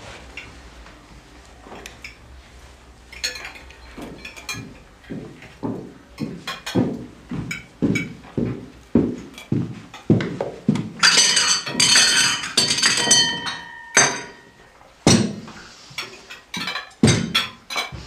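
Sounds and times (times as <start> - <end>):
heavy thuds: 5.2 - 13.5
dishes and glass crashing: 11.0 - 15.4, 16.5 - 18.0.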